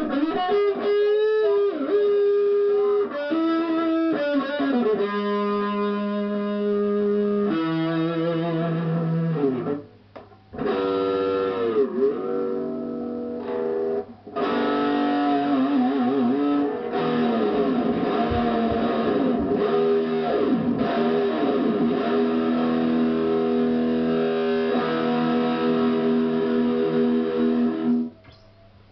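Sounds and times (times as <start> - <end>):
electric guitar played solo: 0.0 - 9.9, 10.5 - 28.5.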